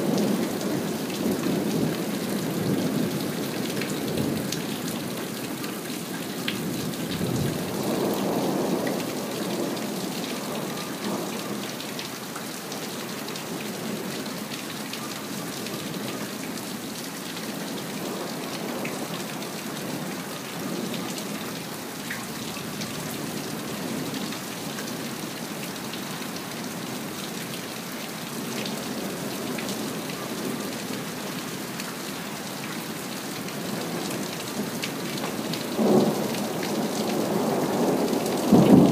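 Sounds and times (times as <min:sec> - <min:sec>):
rain pattering: 0:00.0 - 0:38.9
low rolling thunder: 0:35.7 - 0:38.9.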